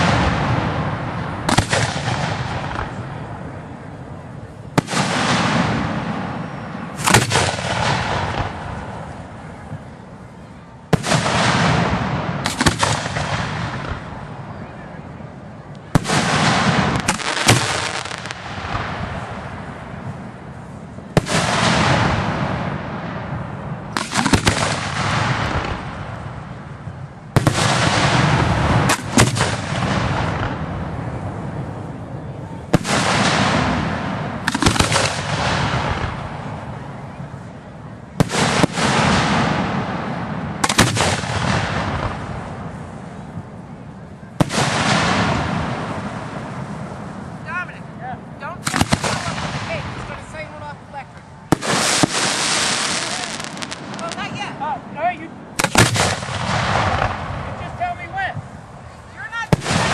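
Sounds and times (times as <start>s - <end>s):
firework shells bursting: 0.0s - 3.4s, 4.7s - 9.5s, 10.9s - 14.4s, 15.7s - 31.6s, 32.7s - 36.8s, 38.2s - 43.7s, 48.6s - 54.4s, 55.5s - 57.8s
rumbling echo: 15.8s - 58.9s.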